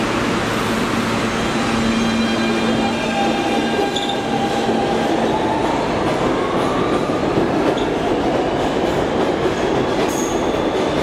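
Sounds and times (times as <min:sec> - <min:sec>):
subway train running on rails: 0:00.0 - 0:11.0.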